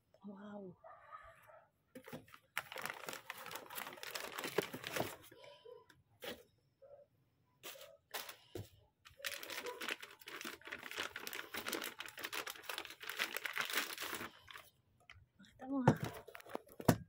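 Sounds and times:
plastic bag crinkling: 2.0s - 5.4s, 9.1s - 15.2s, 16.0s - 16.8s.

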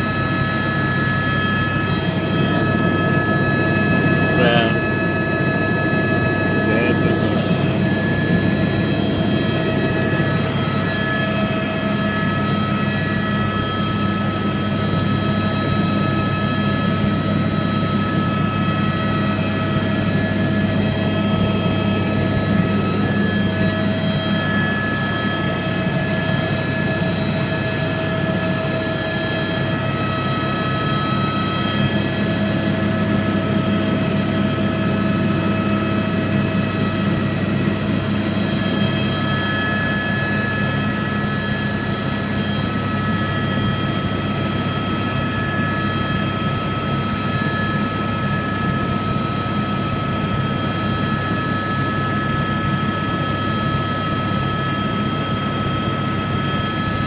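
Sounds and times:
high whining tones: 0.0s - 15.6s
helicopter rotor and engine drone: 0.0s - 57.0s.

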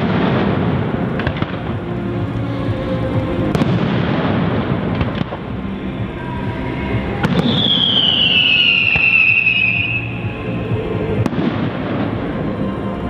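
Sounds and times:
fireworks bangs: 0.0s - 2.4s, 3.1s - 12.5s
falling firework whistle: 7.2s - 10.6s.

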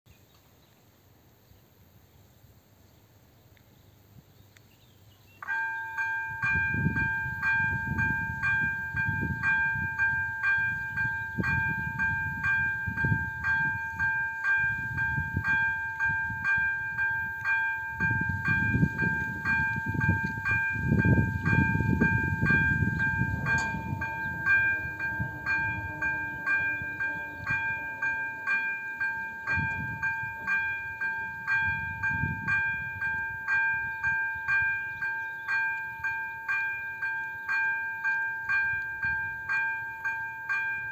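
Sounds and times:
level crossing bell ringing: 5.4s - 40.9s
low gusty rumble: 5.9s - 28.4s, 29.2s - 34.0s.

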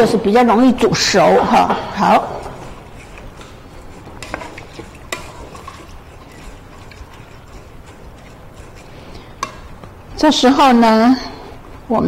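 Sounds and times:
rice stirred in metal pot: 2.0s - 11.0s.

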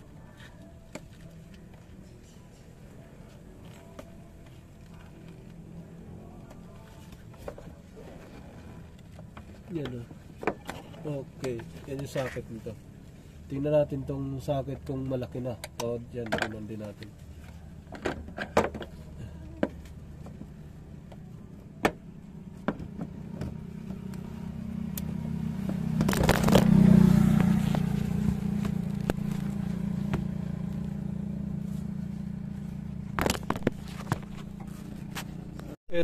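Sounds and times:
low engine hum: 17.0s - 35.8s.

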